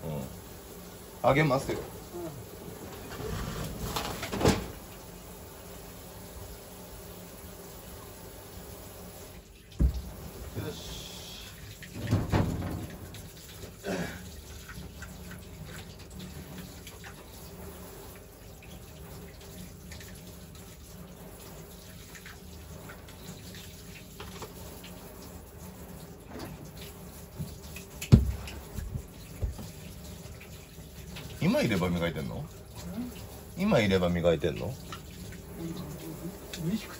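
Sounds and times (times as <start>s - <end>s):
knocks against sink: 9.8s - 10.1s, 28.1s - 29.7s
tap running into metal sink: 9.8s - 10.2s, 11.8s - 13.3s, 27.4s - 29.8s.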